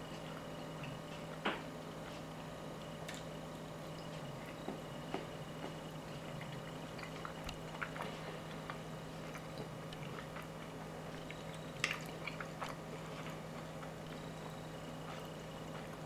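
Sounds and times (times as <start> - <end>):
steady low hum: 0.0 - 16.0
person chewing food: 3.9 - 16.0.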